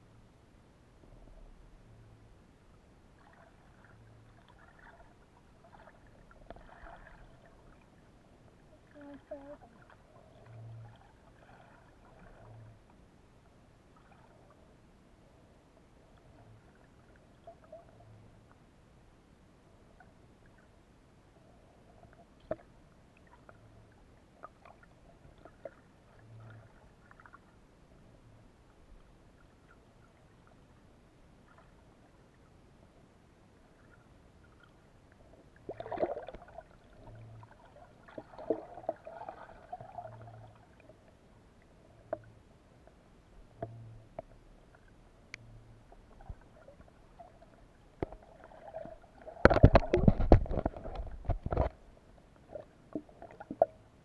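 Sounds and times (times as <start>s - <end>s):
gurgling water: 3.0s - 14.8s, 15.9s - 18.6s, 19.8s - 32.6s, 33.6s - 42.5s, 43.4s - 54.0s
faint underwater clicks: 16.0s - 18.7s, 21.7s - 27.6s, 39.8s - 53.9s.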